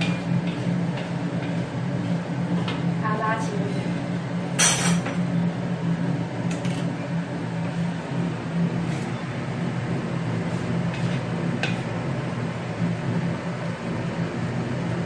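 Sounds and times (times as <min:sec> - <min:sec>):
spatula stirring cabbage in wok: 0:00.0 - 0:02.6, 0:10.4 - 0:12.0
range hood fan humming: 0:00.0 - 0:15.0.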